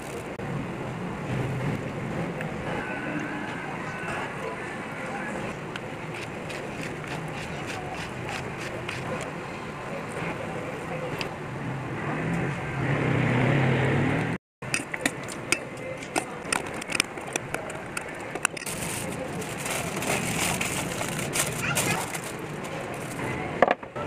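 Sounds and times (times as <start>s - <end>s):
aluminium foil crinkling: 18.1s - 23.3s.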